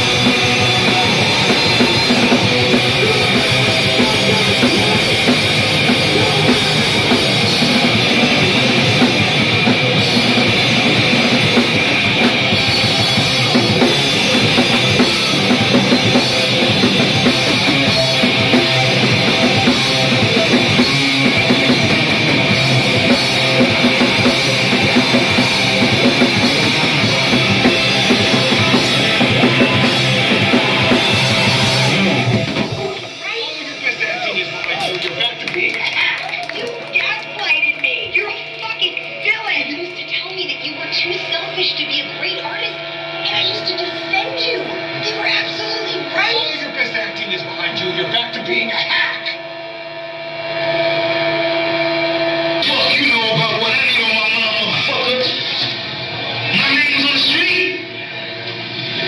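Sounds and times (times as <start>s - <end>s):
drum kit playing: 0.0s - 41.1s, 52.6s - 57.8s
distorted electric guitar: 0.0s - 59.0s.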